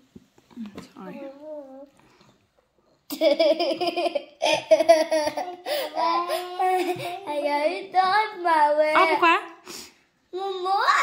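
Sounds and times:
girl laughing: 3.1s - 7.3s.

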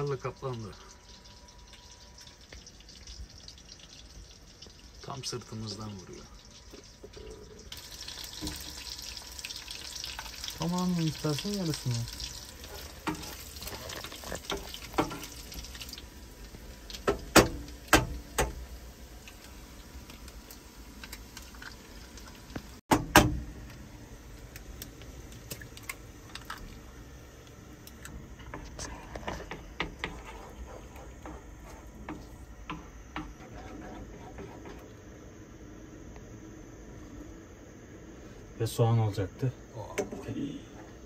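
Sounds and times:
meat sizzling in a frying pan: 0.0s - 27.4s
wooden spoon scraping a pan: 12.6s - 15.4s, 28.4s - 34.9s.

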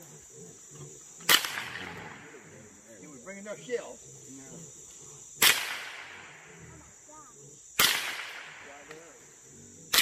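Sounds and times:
gunshots echoing: 1.3s - 2.3s, 5.4s - 6.3s, 7.8s - 8.7s.

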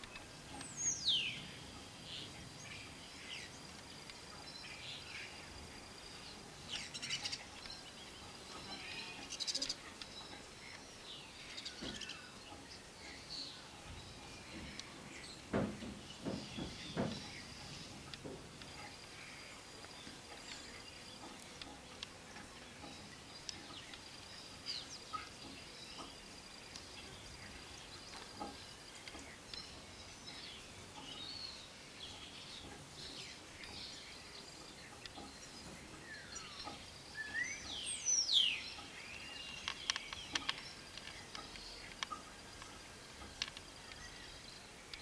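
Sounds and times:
outdoor background hiss: 0.0s - 45.0s
small birds chirping: 0.0s - 45.0s.

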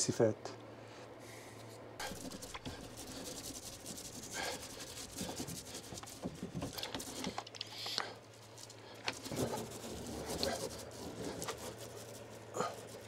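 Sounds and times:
sandpaper rubbing hard surface: 2.0s - 7.4s, 8.4s - 13.0s.

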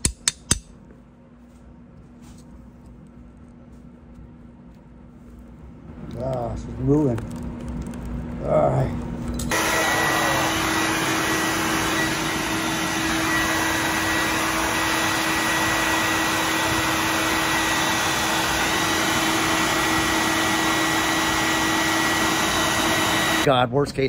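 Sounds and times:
shop vacuum running: 8.4s - 23.5s.

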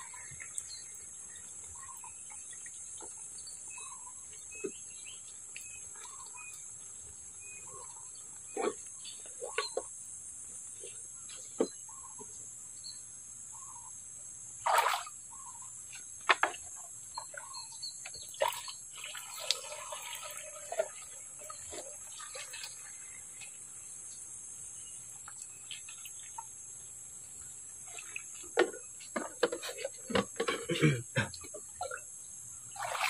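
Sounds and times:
water splash: 14.6s - 15.2s, 18.4s - 23.1s, 32.7s - 33.0s
water pouring into plastic tank: 18.4s - 23.0s, 32.7s - 33.0s.

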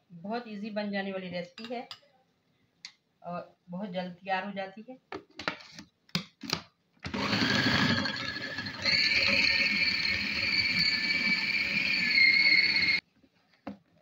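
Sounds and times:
food processor motor whining: 7.1s - 13.0s.

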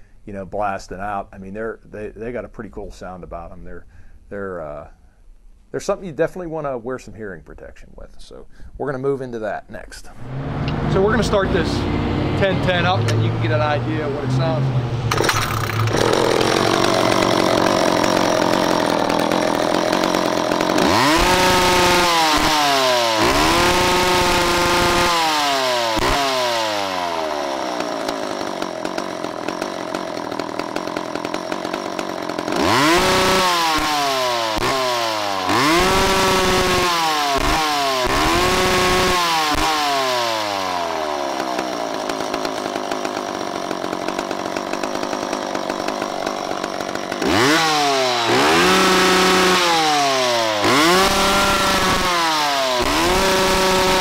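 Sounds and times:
chainsaw idling and revving: 10.7s - 54.0s
starter rope pull: 15.1s - 54.0s.

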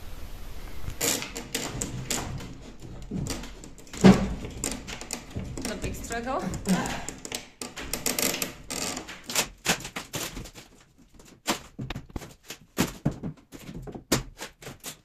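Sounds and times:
steel prying and knocking on wood: 1.1s - 10.6s.

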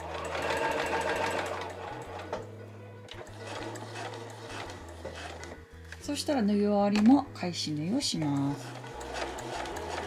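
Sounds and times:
sewing machine stitching: 0.0s - 2.5s, 3.1s - 5.6s, 8.0s - 10.0s
soft background music: 0.0s - 10.0s.

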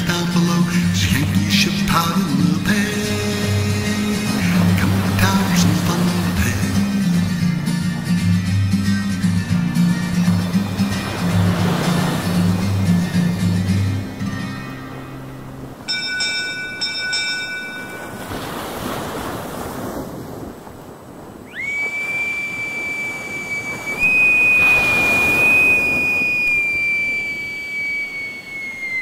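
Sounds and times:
waves washing in: 0.0s - 29.0s
bell ringing: 15.8s - 18.3s
long high whistle: 21.5s - 29.0s.

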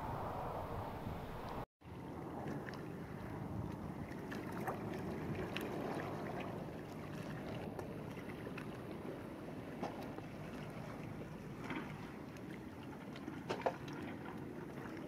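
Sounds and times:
even outdoor rushing noise: 0.0s - 3.9s.

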